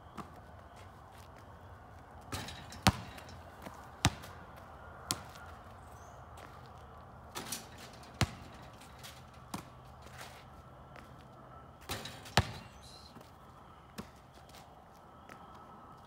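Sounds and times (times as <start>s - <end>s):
basketball bouncing on asphalt: 2.2s - 10.3s, 10.9s - 13.3s, 13.9s - 14.6s.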